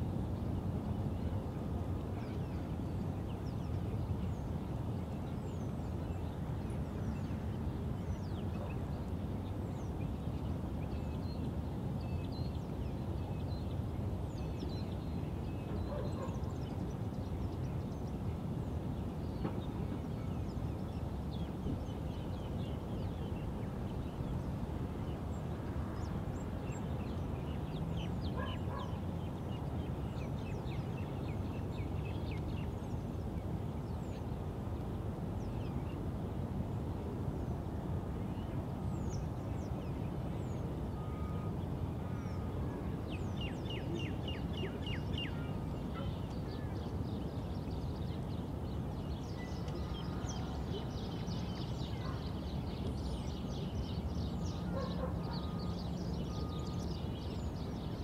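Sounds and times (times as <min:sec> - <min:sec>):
birds chirping: 0:19.4 - 0:33.2, 0:43.2 - 0:58.0.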